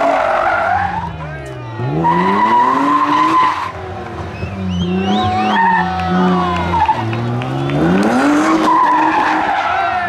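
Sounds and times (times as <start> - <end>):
rally car engine revving: 0.0 - 10.0
tyre squeal: 1.8 - 5.9.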